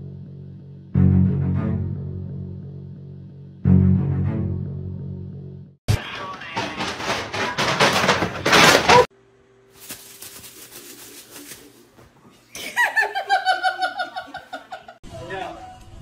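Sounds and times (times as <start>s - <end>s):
person laughing: 12.5s - 15.0s.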